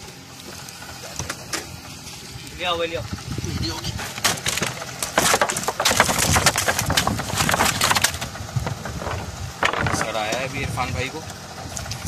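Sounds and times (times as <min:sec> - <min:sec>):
fish thrashing in wooden box: 0:04.1 - 0:10.2.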